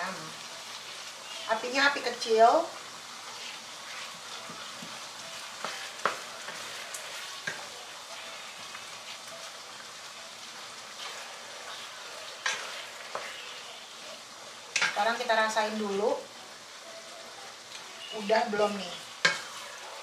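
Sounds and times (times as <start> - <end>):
meat sizzling in a wok: 0.0 - 20.0
wooden spatula scraping a pan: 3.2 - 9.6, 10.5 - 14.2, 18.1 - 20.0.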